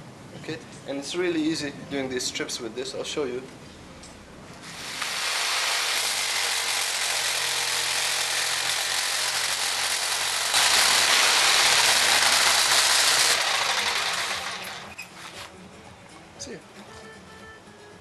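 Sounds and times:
jigsaw cutting wood: 4.6 - 15.5.

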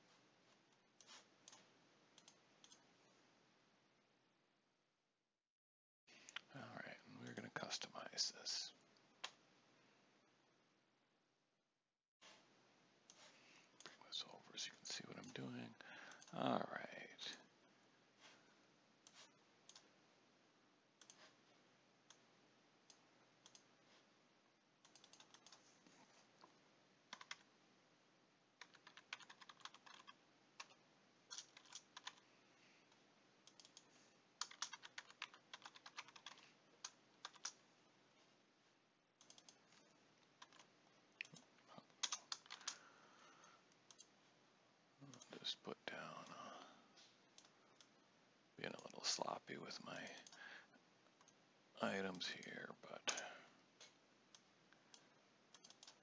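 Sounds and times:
typing on computer keyboard: 24.8 - 25.6, 27.1 - 27.5, 28.6 - 32.2, 33.5 - 37.6, 39.2 - 39.7, 40.4 - 42.8, 54.9 - 56.0.

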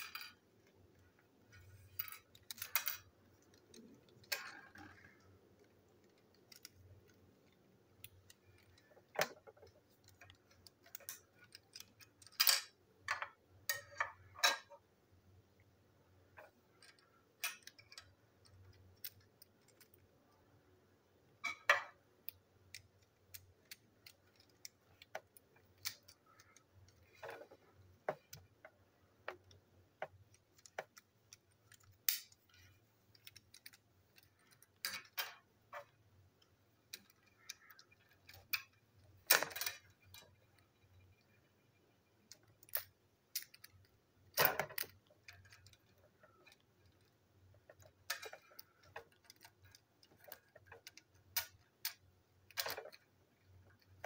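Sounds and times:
plastic toy parts clicking: 0.0 - 14.8, 16.4 - 20.2, 21.5 - 54.0.

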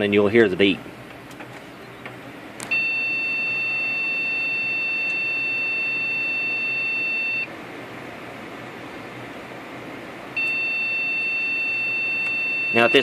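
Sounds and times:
computer fans whirring: 0.0 - 13.0
long high-pitched beep: 2.7 - 7.5, 10.4 - 13.0.

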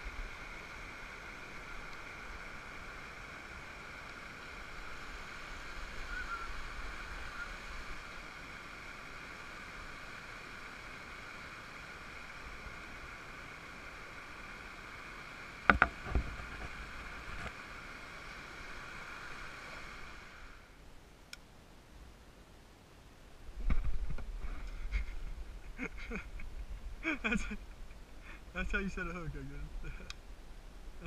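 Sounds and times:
river water rushing over rocks: 0.0 - 20.7
sharp knocks: 15.7 - 16.3.

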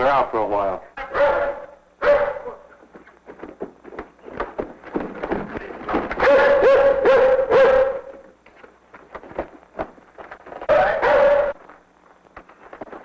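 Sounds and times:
dog barking: 1.0 - 2.8, 6.2 - 8.3, 10.7 - 11.6.

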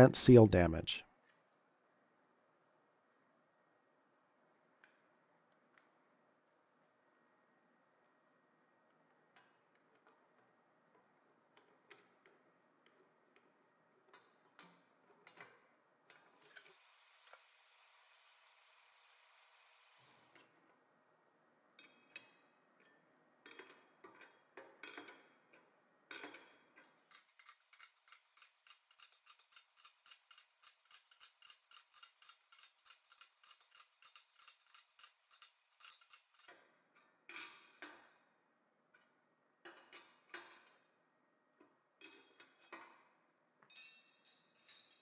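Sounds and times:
wrench clicking on metal: 27.0 - 36.6.

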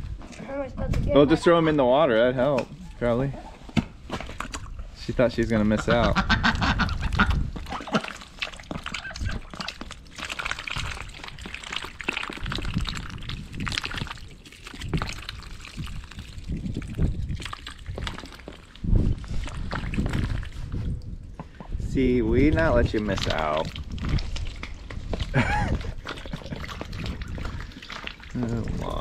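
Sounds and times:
ducks splashing in water: 5.6 - 20.8, 23.0 - 29.0
ducks quacking: 5.7 - 8.2.

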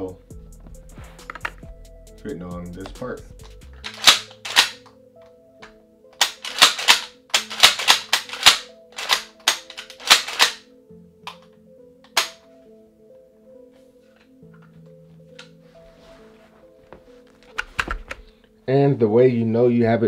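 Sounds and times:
shotgun metal parts clacking: 3.8 - 4.9, 6.2 - 10.6.

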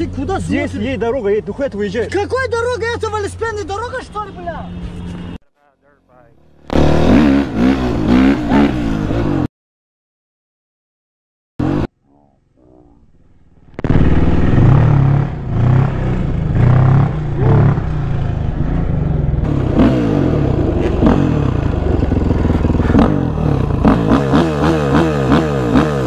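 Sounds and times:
dirt bike engine revving: 6.3 - 9.5, 11.6 - 11.9, 13.6 - 26.0.

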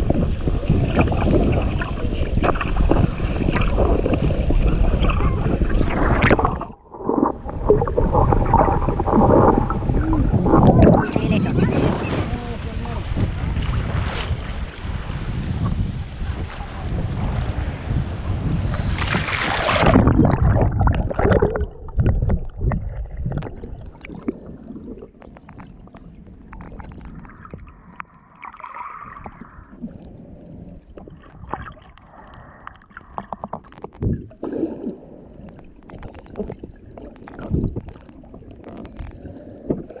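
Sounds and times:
water splashing: 0.0 - 17.8, 18.4 - 40.0
wind noise: 0.0 - 24.9
muffled underwater sloshing: 0.0 - 40.0.

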